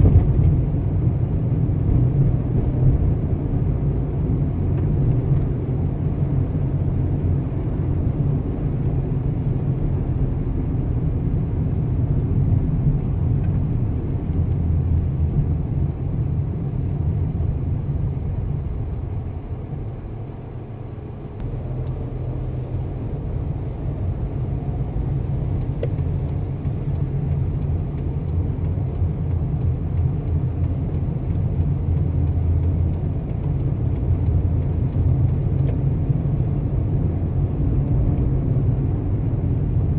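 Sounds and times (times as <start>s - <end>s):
car engine and road noise: 0.0s - 39.9s
faint regular ticking: 25.6s - 35.8s.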